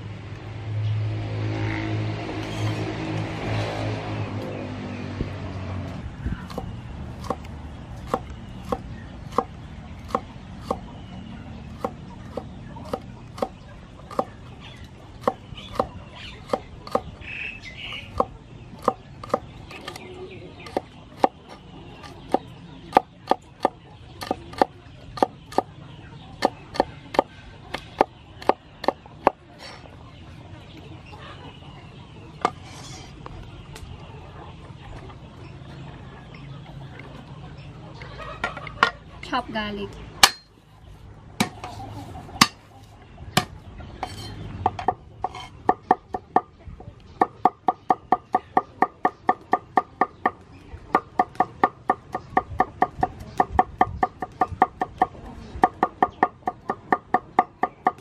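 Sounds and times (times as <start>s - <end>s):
cleaver chopping on wooden board: 11.8s - 14.4s, 18.1s - 19.9s, 40.2s - 40.5s.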